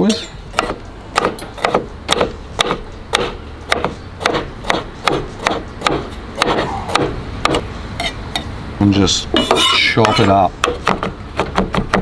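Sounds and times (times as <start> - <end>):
knife chopping on wooden board: 0.5 - 7.7, 9.4 - 12.0.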